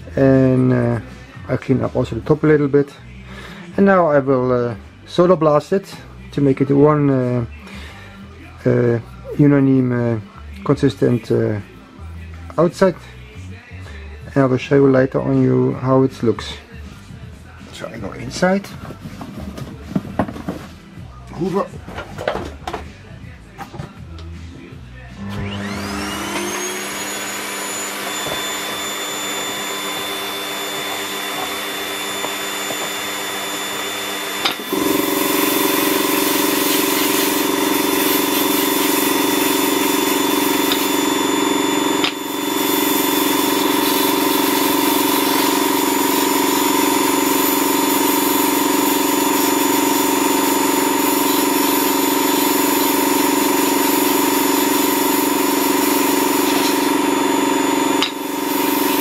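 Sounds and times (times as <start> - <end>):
vacuum extraction whine: 25.1 - 59.0
sandblast gun hissing: 26.6 - 59.0.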